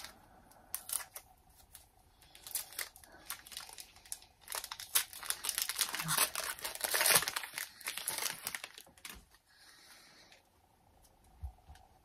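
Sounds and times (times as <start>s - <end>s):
foil wrapper crinkling: 0.0s - 9.4s.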